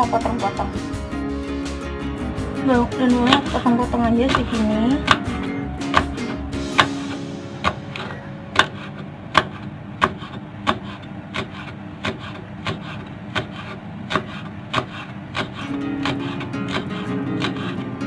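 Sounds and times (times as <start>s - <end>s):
knife chopping on wooden board: 3.2s - 17.9s.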